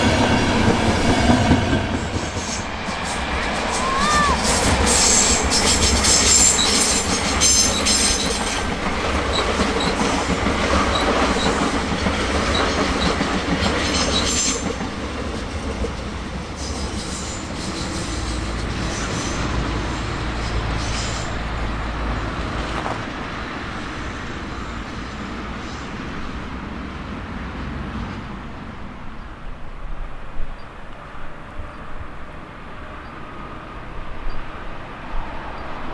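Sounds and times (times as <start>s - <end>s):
train wheels clacking over rails: 0.0s - 28.3s.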